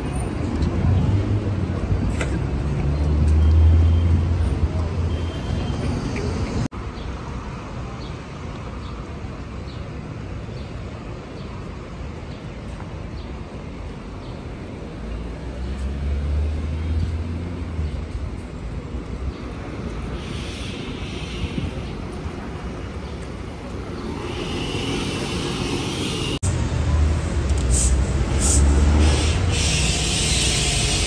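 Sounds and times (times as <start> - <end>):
road traffic: 0.0 - 31.0.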